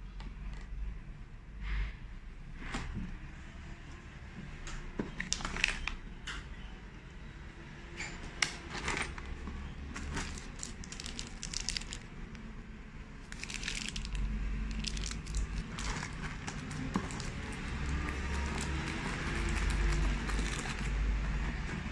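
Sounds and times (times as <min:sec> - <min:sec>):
plastic bags crinkling: 0:05.2 - 0:06.0, 0:09.8 - 0:12.4, 0:13.2 - 0:21.0
cardboard rustling: 0:13.3 - 0:21.9.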